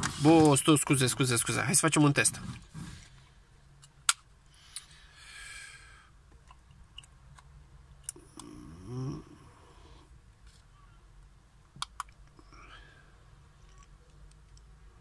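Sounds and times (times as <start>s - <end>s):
person humming: 8.2s - 9.6s.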